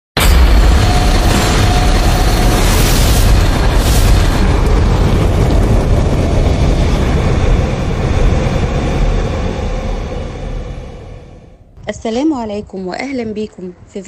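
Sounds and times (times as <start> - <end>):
deep rumbling fire burn: 0.2 - 12.6.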